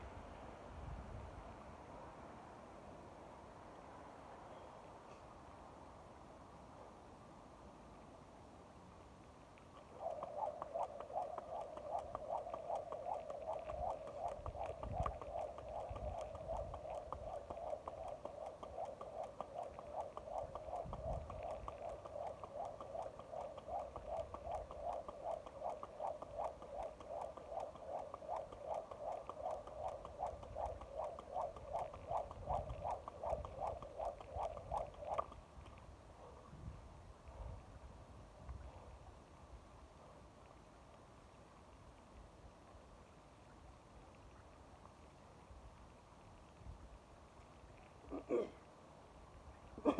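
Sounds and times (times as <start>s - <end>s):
jump rope beating: 10.0s - 35.4s.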